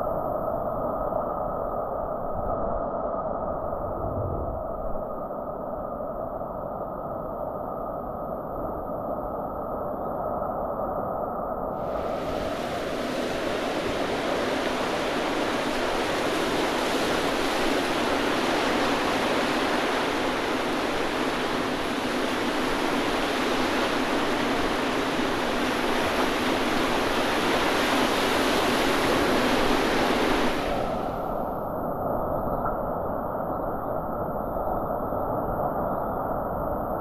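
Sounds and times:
whitewater rapids rushing: 0:11.8 - 0:31.6.

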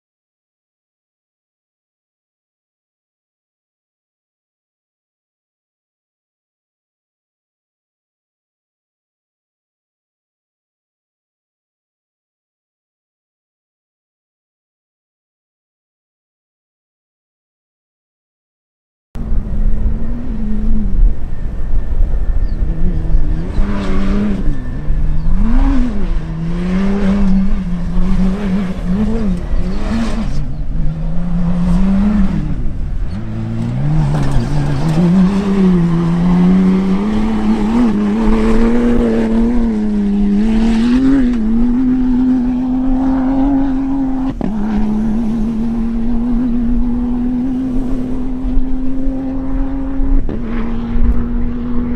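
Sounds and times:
rally car engine revving: 0:19.2 - 0:51.9.

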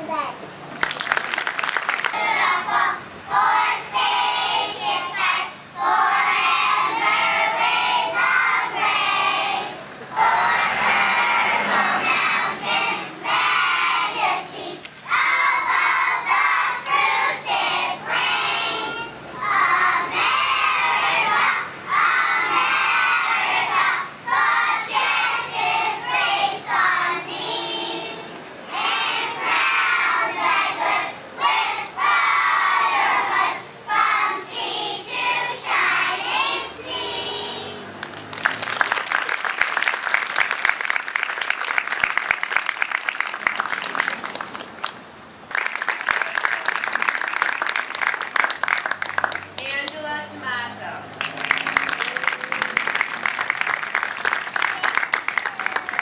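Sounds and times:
applause: 0:00.7 - 0:02.3, 0:38.0 - 0:50.0, 0:51.1 - 0:56.0
children singing: 0:02.1 - 0:37.9.

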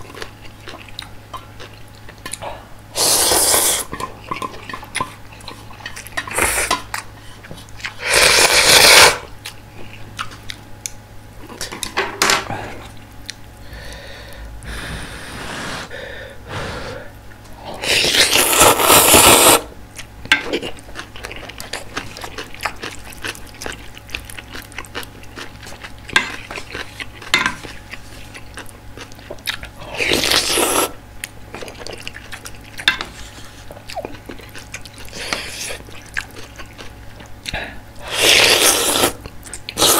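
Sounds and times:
chewing: 0:00.0 - 0:02.7, 0:03.8 - 0:08.0, 0:09.3 - 0:11.8, 0:19.9 - 0:39.9
noodles slurped loudly: 0:38.0 - 0:39.9.

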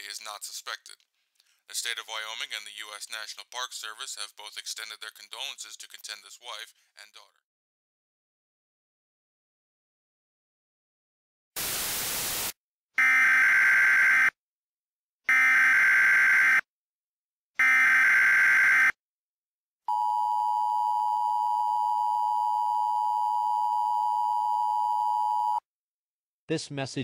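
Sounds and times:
static burst: 0:11.6 - 0:12.6.

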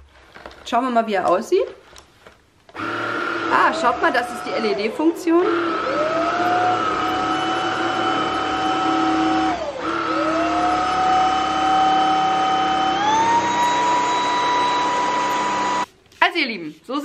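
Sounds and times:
stick vacuum motor whine: 0:02.7 - 0:15.9.

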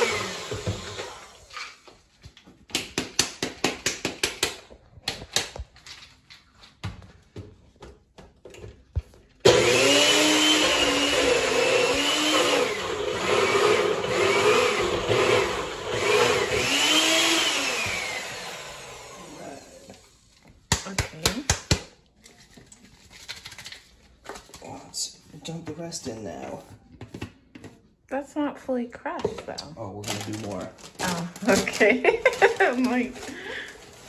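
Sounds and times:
blender motor grinding chips: 0:00.0 - 0:01.8, 0:09.4 - 0:20.2, 0:29.8 - 0:34.0.

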